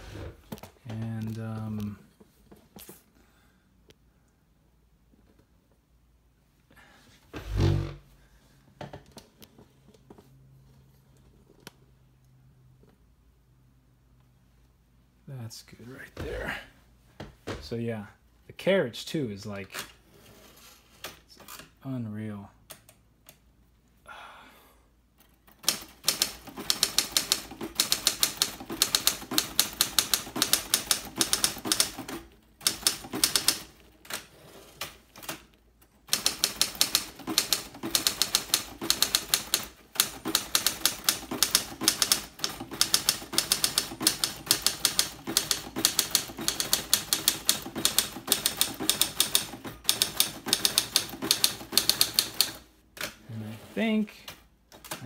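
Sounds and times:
manual typewriter typing: 25.5 - 53.2.

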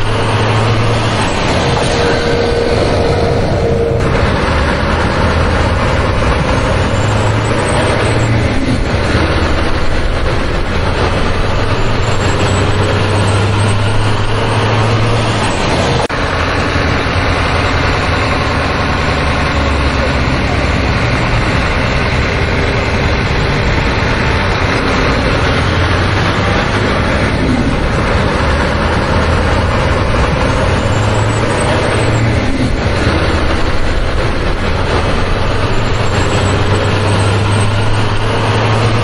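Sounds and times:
truck engine drone: 0.0 - 39.0.

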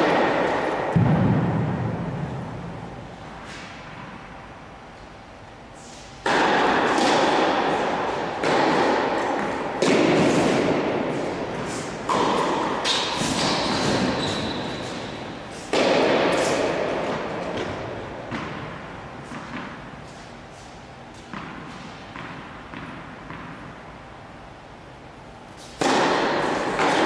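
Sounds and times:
tennis ball hits echoing: 0.0 - 2.7, 6.2 - 19.8, 25.8 - 27.0.

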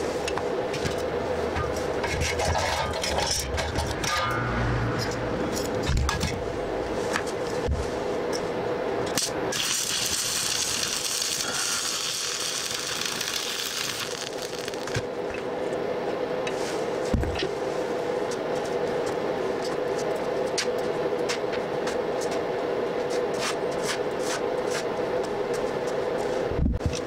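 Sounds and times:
steady hum: 0.0 - 27.0
welding arc crackling: 9.2 - 15.1.

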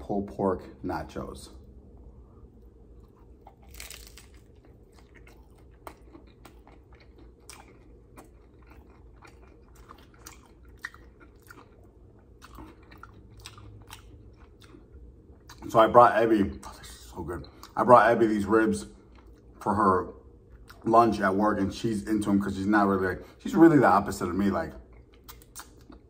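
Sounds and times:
tortilla chips crunching: 2.9 - 14.8.

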